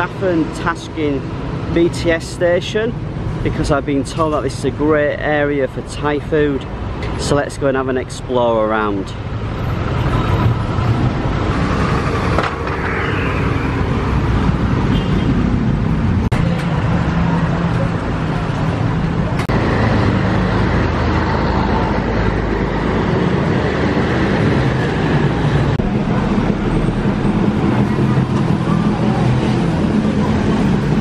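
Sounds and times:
car and motorbike engines passing: 9.1s - 31.0s.

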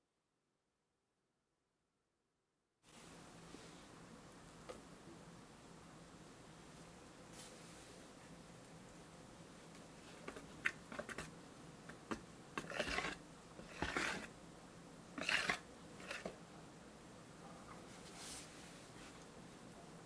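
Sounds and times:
whisk swishing through batter: 10.2s - 14.4s, 15.2s - 16.4s.

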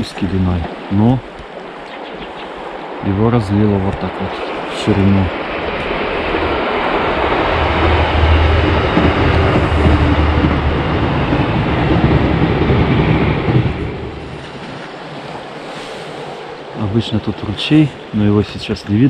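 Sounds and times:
passing train rumble: 0.0s - 19.0s
river rushing: 0.0s - 19.0s.

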